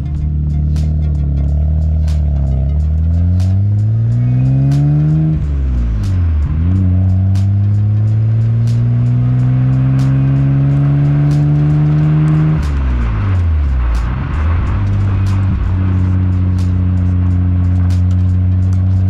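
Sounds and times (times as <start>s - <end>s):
car engine revving through exhaust: 0.0s - 19.0s.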